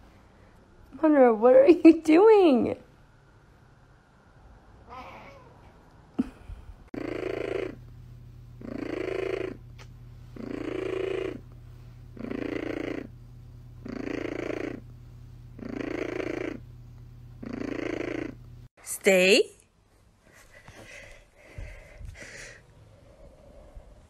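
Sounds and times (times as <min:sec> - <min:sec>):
cat purring: 0:06.9 - 0:18.7.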